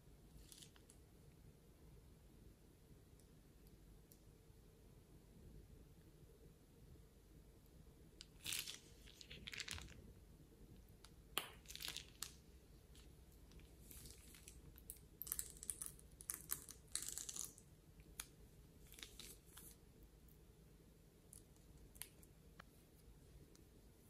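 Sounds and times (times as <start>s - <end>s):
plastic bag crinkling: 8.3s - 10.0s
wet slime squishing: 11.0s - 19.8s.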